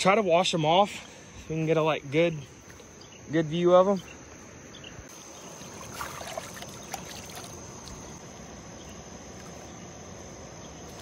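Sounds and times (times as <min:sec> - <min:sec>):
crickets chirring: 0:00.0 - 0:11.0
water sloshing: 0:05.1 - 0:10.0
water dripping: 0:05.4 - 0:08.2.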